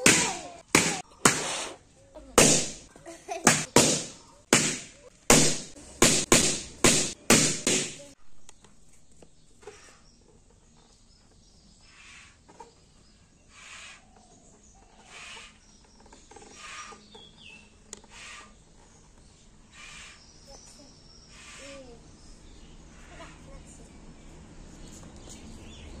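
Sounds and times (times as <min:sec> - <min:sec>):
soft hissing puffs: 0:01.2 - 0:02.0, 0:13.5 - 0:14.1, 0:19.6 - 0:20.3, 0:21.2 - 0:22.0
faint bird calls: 0:09.2 - 0:10.9, 0:11.8 - 0:23.9.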